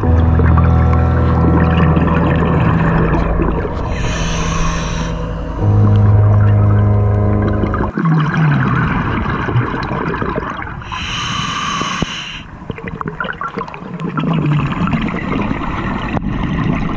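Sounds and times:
bubbles bubbling and crackling: 0:00.0 - 0:16.9
hissing breath through regulator: 0:03.9 - 0:05.7, 0:10.8 - 0:12.6.

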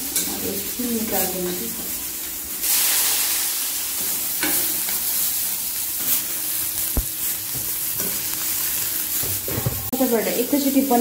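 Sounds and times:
onion and mushroom sizzling: 0:00.0 - 0:11.0
steel ladle stirring in iron pan: 0:04.0 - 0:05.3.

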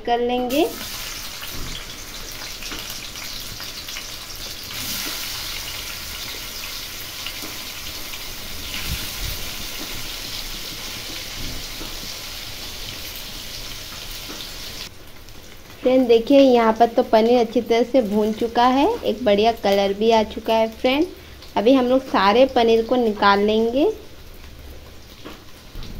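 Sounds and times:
food sizzling in hot oil: 0:00.4 - 0:25.9.

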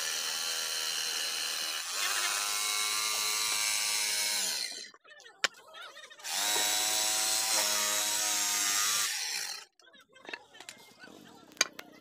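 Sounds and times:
jigsaw cutting wood: 0:00.0 - 0:04.9, 0:06.2 - 0:09.7.

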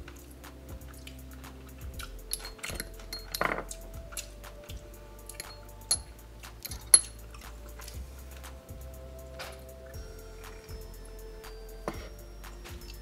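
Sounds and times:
metal cutlery clinking on ceramic bowl: 0:02.3 - 0:03.8, 0:05.3 - 0:07.4.

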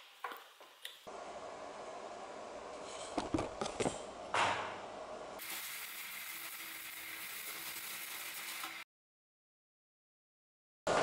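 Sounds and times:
welding arc hissing: 0:05.4 - 0:08.8.

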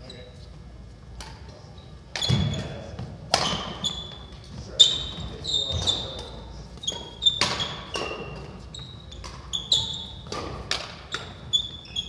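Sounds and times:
shoes squeaking on wooden floor: 0:02.2 - 0:12.0
rackets striking shuttlecock: 0:03.3 - 0:03.8, 0:05.9 - 0:08.6, 0:10.1 - 0:11.5.

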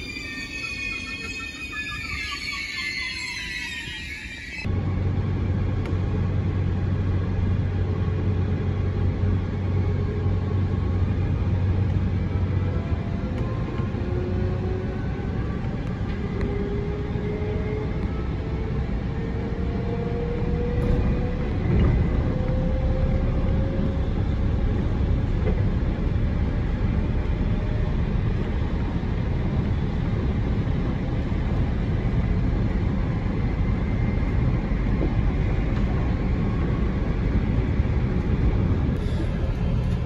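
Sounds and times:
train wheels rolling on rails: 0:12.8 - 0:40.0.

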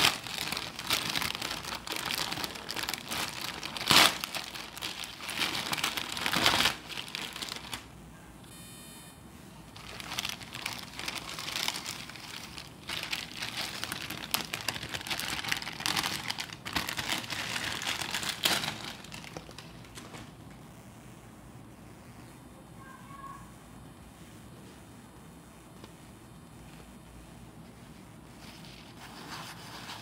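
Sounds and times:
plastic wrapping crinkling: 0:00.0 - 0:07.9, 0:09.7 - 0:20.3.

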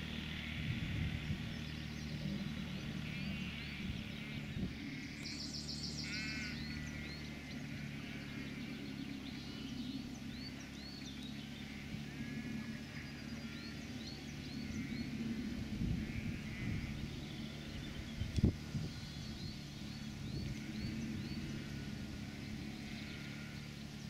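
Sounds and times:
birds chirping and trilling: 0:00.0 - 0:24.0
quad bike engine running: 0:00.0 - 0:24.0.

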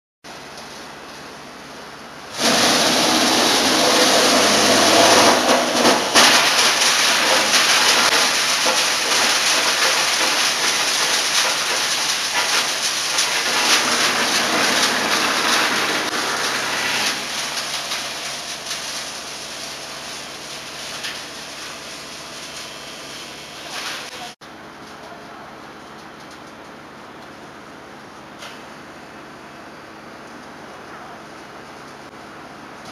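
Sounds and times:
crusher grinding wood: 0:02.4 - 0:18.7.

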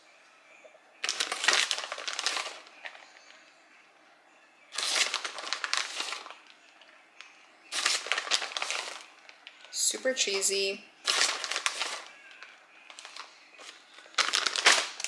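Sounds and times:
plastic bag crinkling: 0:01.0 - 0:03.1, 0:04.8 - 0:06.6, 0:07.7 - 0:15.0.

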